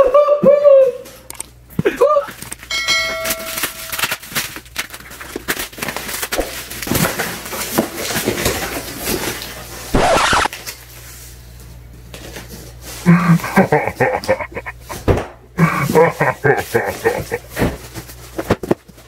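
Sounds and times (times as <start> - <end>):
crinkling and rustling packaging: 2.3 - 9.9, 16.4 - 19.0
plastic wrap tearing: 3.6 - 8.2.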